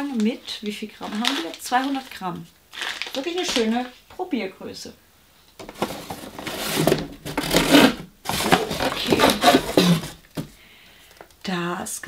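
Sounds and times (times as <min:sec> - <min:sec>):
rummaging in a cardboard box: 0:05.6 - 0:10.6.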